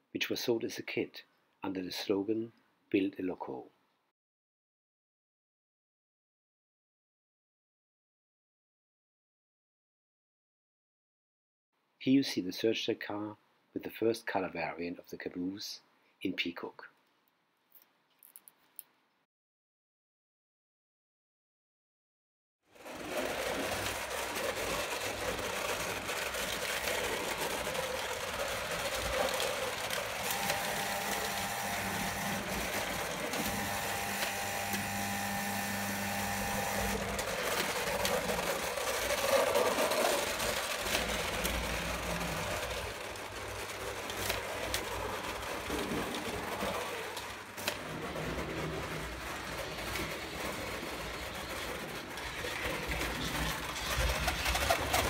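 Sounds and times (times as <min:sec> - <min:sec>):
toy train motors whirring: 0:22.8 - 0:55.0.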